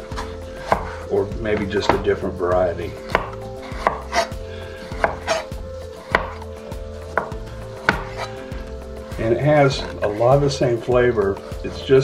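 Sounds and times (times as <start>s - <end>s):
knife knocking on cutting board: 7.2s - 8.3s.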